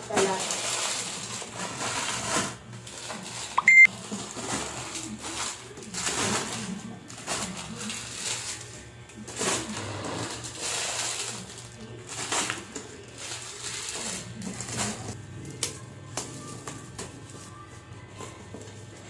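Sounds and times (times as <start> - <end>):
plastic wrappers rustling: 0.0 - 18.9.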